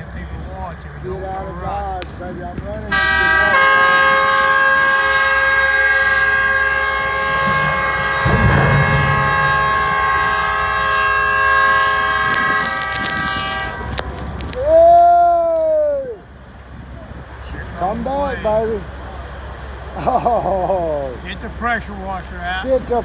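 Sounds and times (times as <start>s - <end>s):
ship's horn blast: 2.9s - 14.5s.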